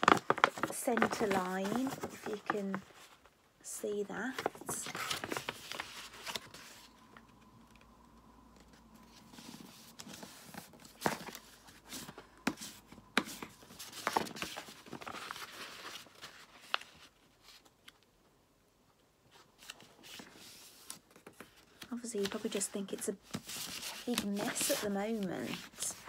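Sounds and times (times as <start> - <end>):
paper rustling and folding: 0.0 - 3.4, 4.1 - 7.8, 8.6 - 18.1, 19.3 - 26.0.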